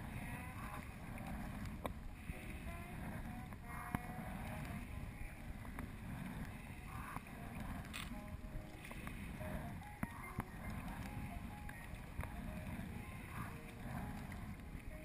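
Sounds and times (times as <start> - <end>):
paddle strokes: 0.0 - 15.0
wind rumble on microphone: 0.0 - 15.0.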